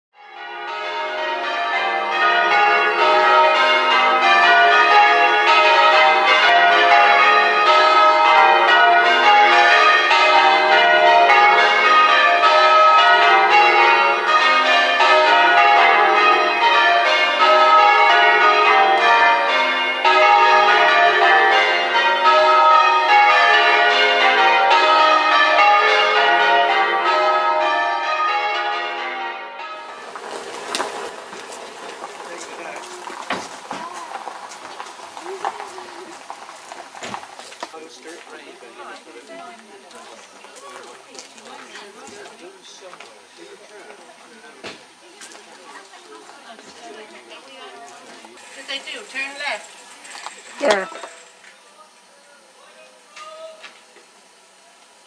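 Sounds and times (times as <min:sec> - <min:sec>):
church bells change ringing: 0:00.2 - 0:34.0, 0:46.9 - 0:51.4.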